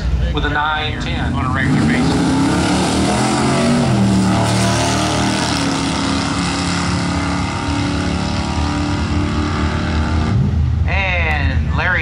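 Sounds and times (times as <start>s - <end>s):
racing car engines at full throttle: 0.0s - 12.0s.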